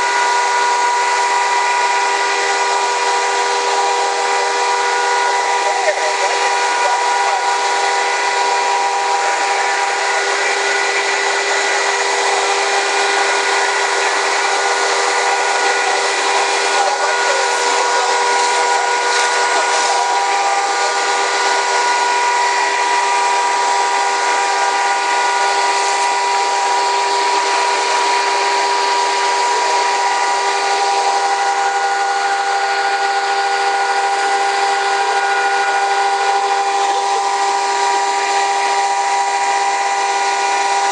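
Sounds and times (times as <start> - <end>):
fire engine pumps whining: 0.0 - 40.9
fire hoses spraying hiss: 5.4 - 30.5.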